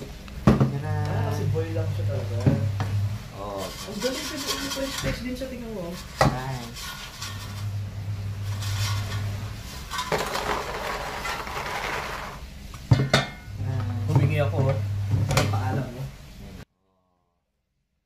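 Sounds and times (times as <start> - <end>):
fries rustling and scraping: 3.4 - 12.5.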